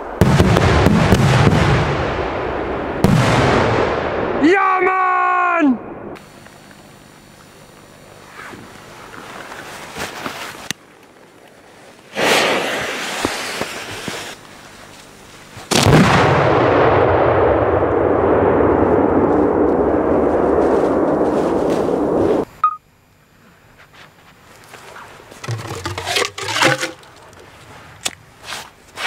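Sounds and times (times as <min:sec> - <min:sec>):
firework hiss: 0:12.1 - 0:14.4
firework shells exploding: 0:12.1 - 0:14.4
explosion rumble: 0:15.7 - 0:22.4.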